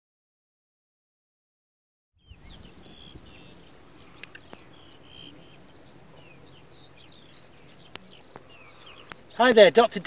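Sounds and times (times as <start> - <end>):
insects chirping: 2.2 - 10.0
short falling bird calls: 6.2 - 9.4.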